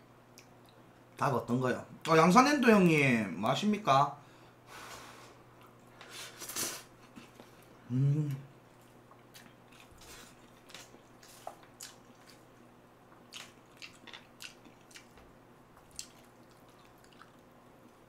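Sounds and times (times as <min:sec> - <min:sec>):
wet chewing of noodles: 0:08.7 - 0:18.0.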